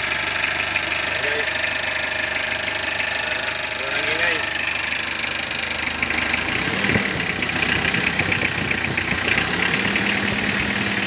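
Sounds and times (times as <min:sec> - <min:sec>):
diesel engine idling: 0:00.0 - 0:11.0
fast even engine clatter: 0:05.7 - 0:11.0.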